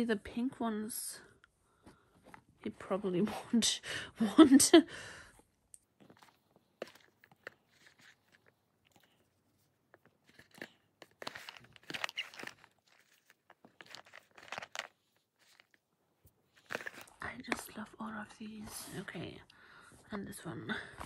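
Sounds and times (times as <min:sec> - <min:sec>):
hair ties rustling and clicking: 0:06.0 - 0:09.3, 0:09.9 - 0:15.8, 0:16.5 - 0:17.6.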